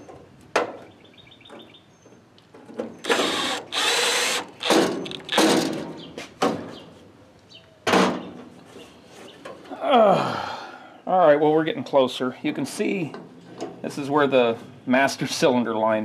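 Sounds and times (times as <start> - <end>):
drill drilling through steel: 3.1 - 4.5.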